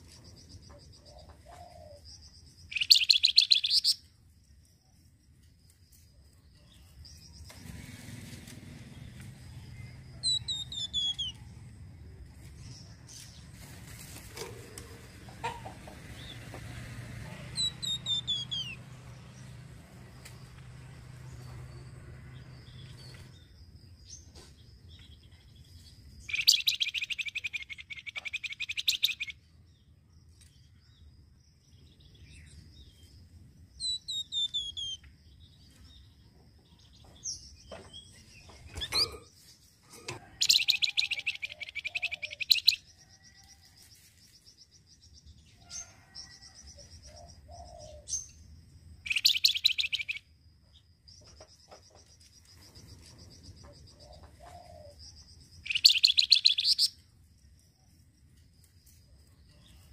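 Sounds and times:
bird whistled notes and clicks: 2.7s - 4.0s, 26.3s - 29.3s, 49.1s - 50.2s, 55.6s - 57.0s
songbird buzzy chattering: 2.7s - 4.0s, 26.2s - 29.3s, 49.0s - 50.2s, 55.6s - 57.0s.

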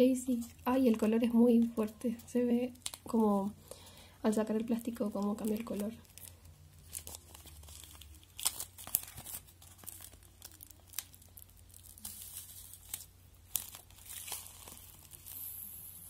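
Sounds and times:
cellophane wrap crinkling: 0.2s - 16.0s.

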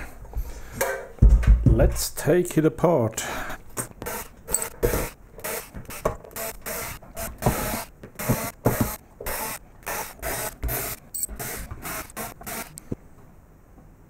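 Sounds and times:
cordless screwdriver running: 4.0s - 12.8s.

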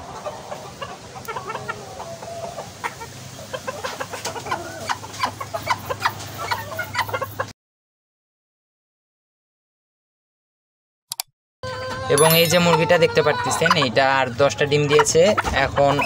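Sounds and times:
chickens clucking: 0.0s - 7.5s, 11.6s - 16.0s.

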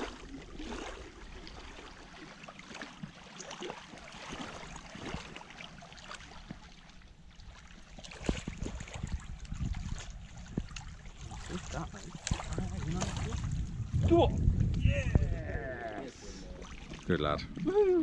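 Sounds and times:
fish splashing in water: 0.0s - 13.6s.

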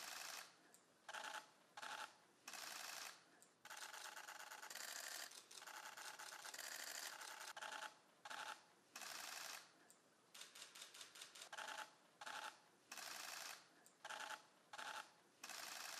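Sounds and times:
camera shutters clicking: 10.4s - 15.8s.

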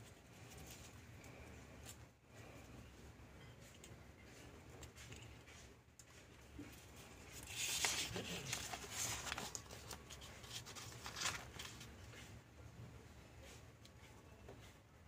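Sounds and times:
paper rustling on cutting mat: 6.2s - 12.4s
craft knife cutting paper: 7.2s - 11.9s.

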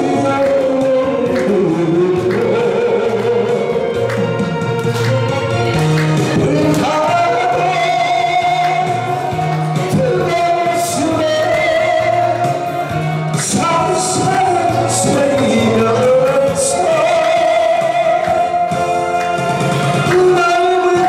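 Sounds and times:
person singing into a microphone: 0.0s - 4.9s, 6.2s - 21.0s
accompanying music: 0.0s - 21.0s.

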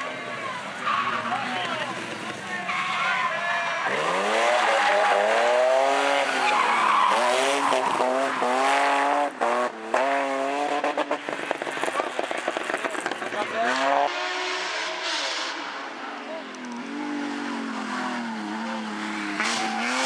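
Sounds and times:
tyres skidding and squealing: 0.0s - 20.0s
car engine revving hard: 3.9s - 12.8s.

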